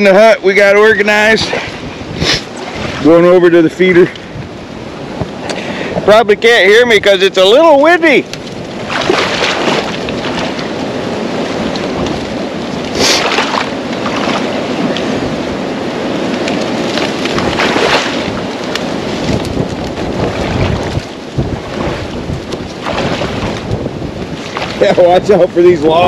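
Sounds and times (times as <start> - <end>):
wind buffeting microphone: 0.0 - 26.0
water sloshing: 1.2 - 3.4, 8.3 - 25.4
dry stalks rustling: 8.2 - 25.3.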